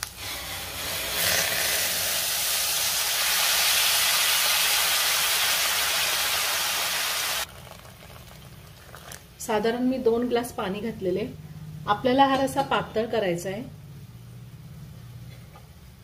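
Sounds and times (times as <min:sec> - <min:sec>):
water hissing in hot oil: 0:00.0 - 0:09.2.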